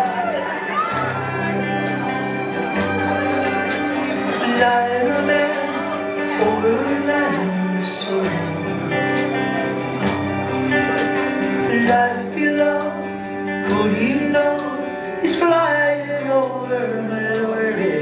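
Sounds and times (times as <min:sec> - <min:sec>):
live soft rock band: 0:00.0 - 0:18.0.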